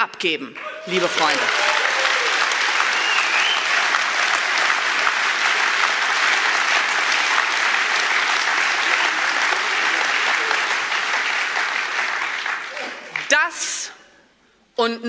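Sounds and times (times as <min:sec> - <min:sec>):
audience applauding: 0:00.6 - 0:13.5
short whistle: 0:03.0 - 0:03.7.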